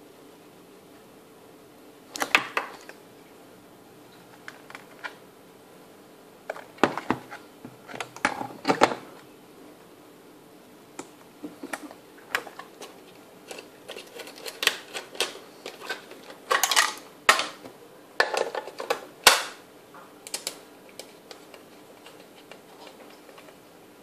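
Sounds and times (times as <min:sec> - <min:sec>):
plastic parts clattering: 0:11.7 - 0:17.6, 0:18.2 - 0:19.5.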